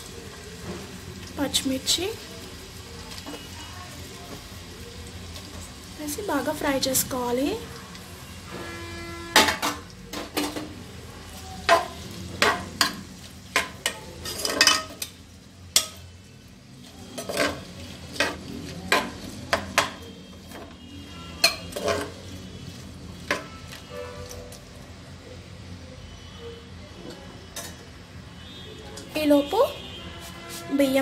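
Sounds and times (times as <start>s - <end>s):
faint frying sizzle: 0.0s - 31.0s
spoon scraping a pot: 13.6s - 15.2s, 17.0s - 20.8s, 21.4s - 22.3s.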